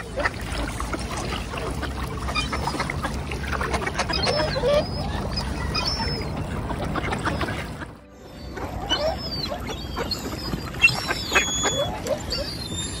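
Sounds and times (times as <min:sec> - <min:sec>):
water birds splashing: 0:00.0 - 0:13.0
wavering bird call: 0:08.2 - 0:13.0.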